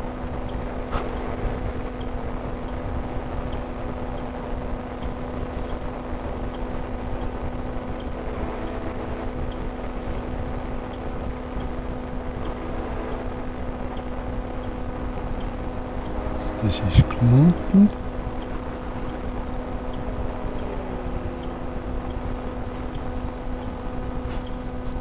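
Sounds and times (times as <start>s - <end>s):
ultralight engine droning: 17.5s - 25.0s.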